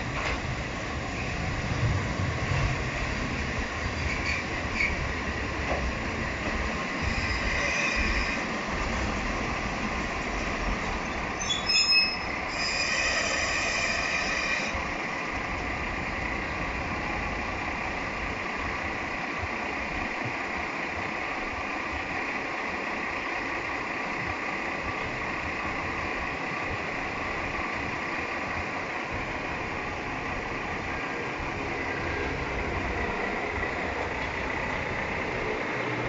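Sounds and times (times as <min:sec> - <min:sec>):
diesel railcar engine idling: 0:00.0 - 0:36.0
train brake squeals: 0:04.0 - 0:05.0, 0:07.0 - 0:08.5, 0:11.0 - 0:14.8.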